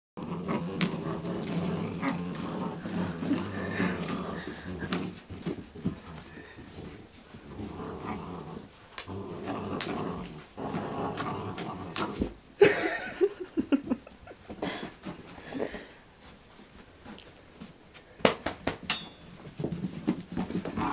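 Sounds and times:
puppies growling: 0:00.2 - 0:12.4, 0:20.4 - 0:20.9.

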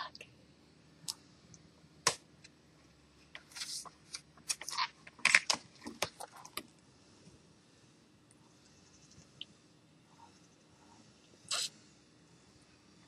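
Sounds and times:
flashcards flipped by hand: 0:03.4 - 0:06.6.

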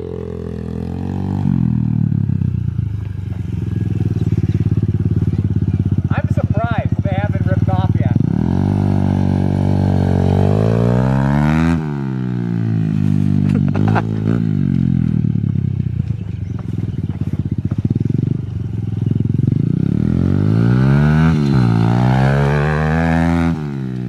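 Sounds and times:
motorbike engine chugging: 0:00.0 - 0:11.0, 0:13.1 - 0:20.8.

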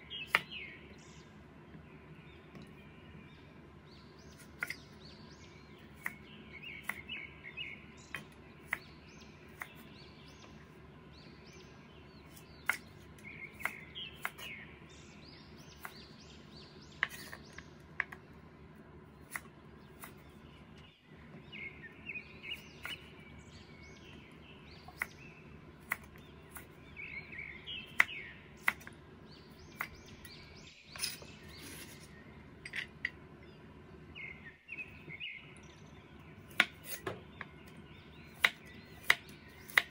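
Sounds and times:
birds chirping: 0:00.0 - 0:39.9
cleaver chopping on wooden board: 0:36.5 - 0:37.5, 0:38.4 - 0:39.9.

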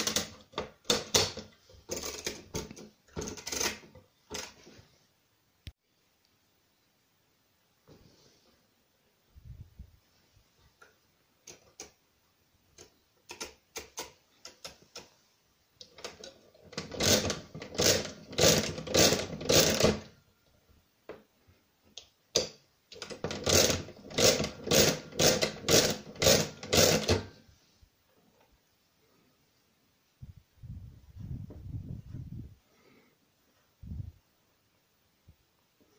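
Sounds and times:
clattering crank turns: 0:00.0 - 0:04.6, 0:16.0 - 0:20.1, 0:23.0 - 0:27.3.

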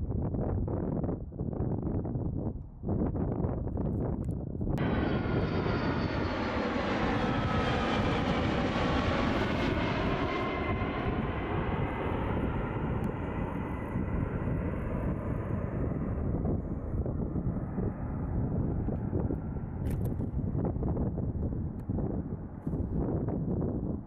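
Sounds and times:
jet engine whine: 0:04.7 - 0:24.0
jet engine roar: 0:04.8 - 0:20.6.

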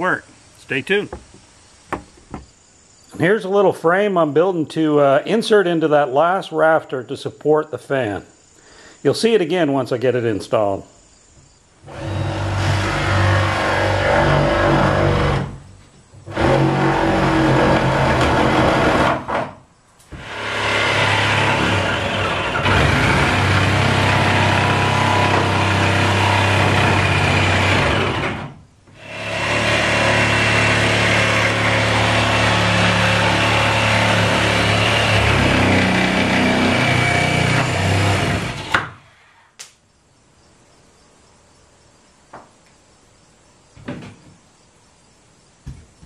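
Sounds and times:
electric jigsaw cutting wood: 0:11.8 - 0:15.6, 0:16.3 - 0:19.5, 0:20.1 - 0:38.8.

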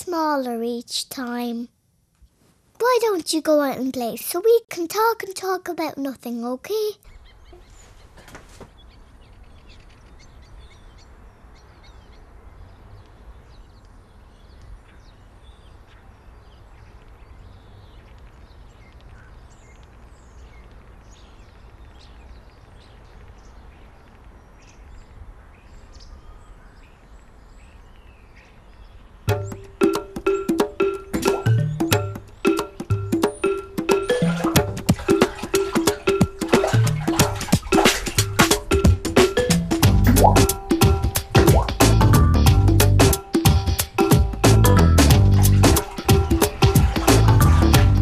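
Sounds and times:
birds chirping and calling: 0:07.0 - 0:41.8
music: 0:29.3 - 0:48.0.

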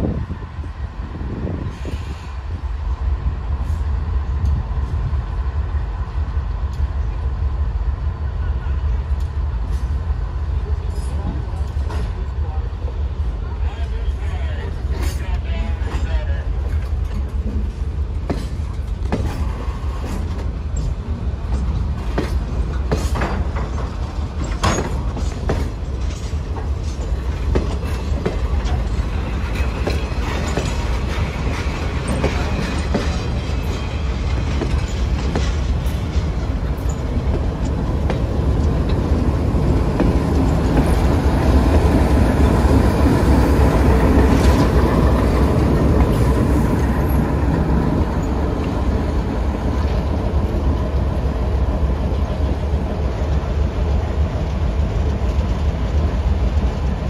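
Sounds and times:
diesel locomotive rumble: 0:00.0 - 0:57.0
wheels clicking over rail joints: 0:14.9 - 0:48.8.

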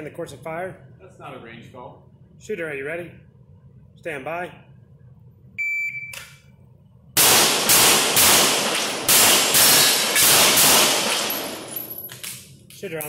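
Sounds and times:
shot timer beep: 0:05.6 - 0:06.4
pistol shots echoing: 0:07.2 - 0:12.1.

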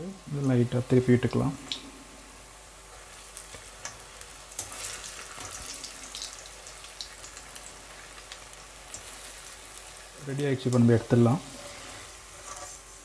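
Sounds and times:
onion rings deep-frying in oil: 0:00.0 - 0:13.0.

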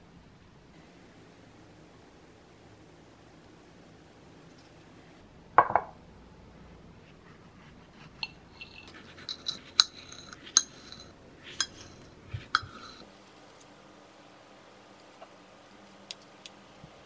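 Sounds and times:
knife clinking on ceramic plate: 0:08.2 - 0:13.0.

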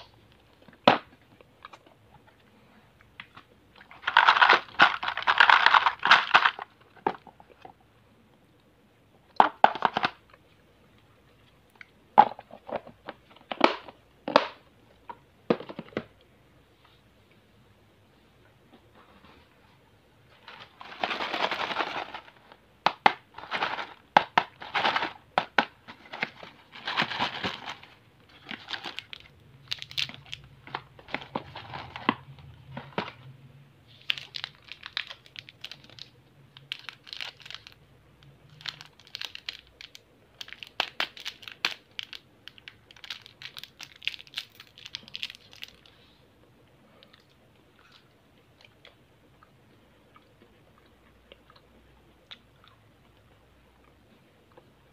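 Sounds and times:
candy wrappers crinkling: 0:03.8 - 0:07.3, 0:20.4 - 0:33.2, 0:33.9 - 0:46.0.

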